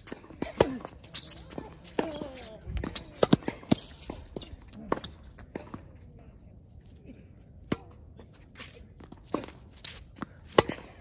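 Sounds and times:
tennis balls bouncing on court: 0.0 - 5.9, 9.0 - 11.0
tennis balls struck by rackets: 0.0 - 5.9, 9.0 - 11.0.

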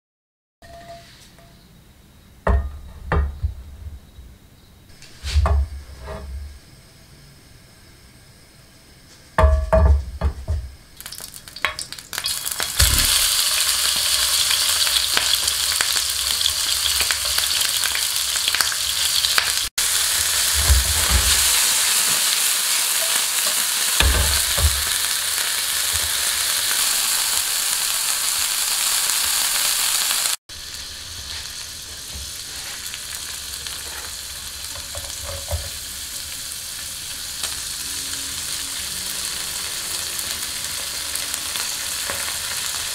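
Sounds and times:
knocks: 2.5 - 4.0
meat sizzling in a frying pan: 10.9 - 42.9.

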